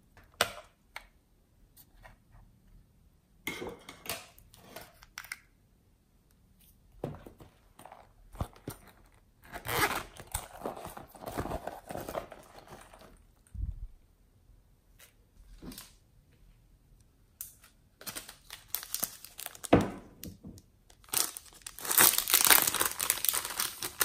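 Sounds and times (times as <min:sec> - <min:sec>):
material rustling and crinkling: 0:07.2 - 0:13.5, 0:20.9 - 0:24.0.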